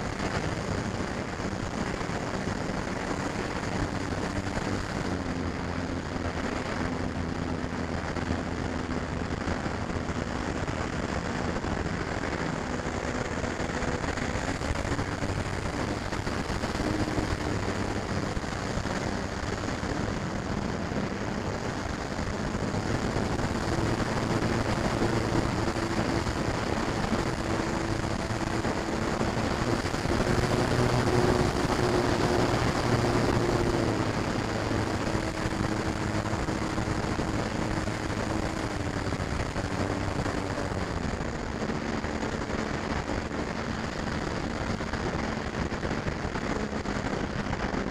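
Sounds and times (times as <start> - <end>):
wind rushing over microphone: 0.0 - 47.9
model plane electric motor humming: 13.2 - 40.8.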